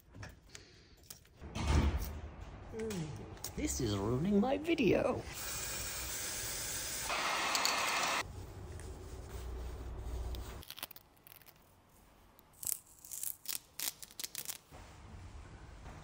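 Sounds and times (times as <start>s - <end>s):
masking tape ripping: 12.5s - 14.7s.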